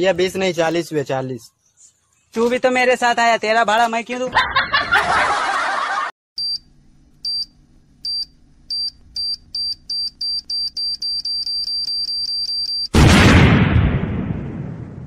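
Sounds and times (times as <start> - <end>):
short electronic beeps: 6.4 - 7.5, 8.1 - 13.0.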